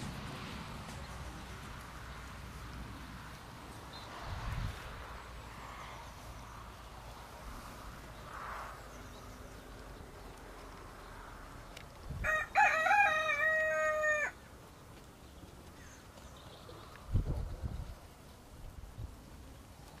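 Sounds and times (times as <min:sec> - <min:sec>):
rooster crowing: 0:12.2 - 0:14.4.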